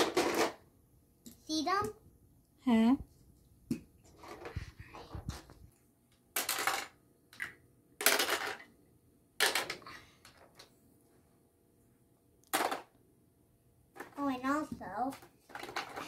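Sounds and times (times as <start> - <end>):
plastic toys clattering: 0.0 - 0.6, 4.0 - 5.5, 6.3 - 8.8, 9.4 - 10.7, 12.5 - 13.0, 14.0 - 16.0.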